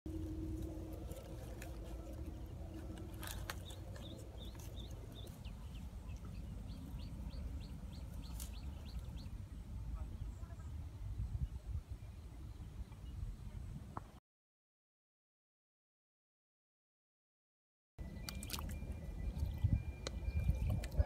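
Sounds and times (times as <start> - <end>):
low outdoor rumble: 0.1 - 14.0.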